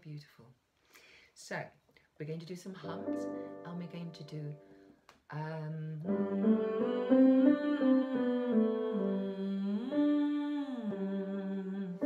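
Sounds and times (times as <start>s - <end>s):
woman humming: 5.4s - 12.0s
musical instrument: 6.0s - 11.5s.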